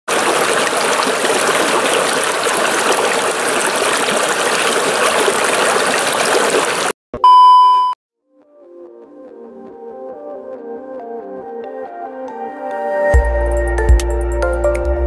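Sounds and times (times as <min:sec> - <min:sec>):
stream rushing over rocks: 0:00.1 - 0:06.9.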